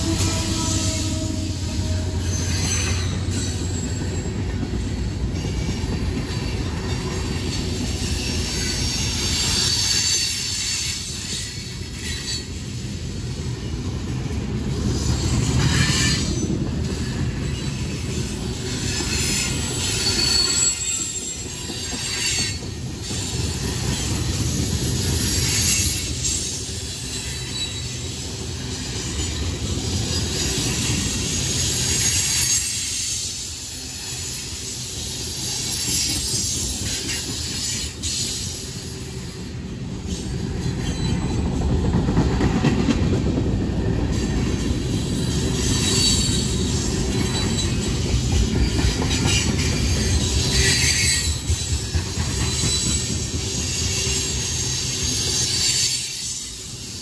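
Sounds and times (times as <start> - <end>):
high-pitched wheel squeal: 0.0 - 4.5, 17.0 - 22.6, 30.1 - 34.8, 44.9 - 57.0
freight train wheels rumbling: 0.0 - 57.0.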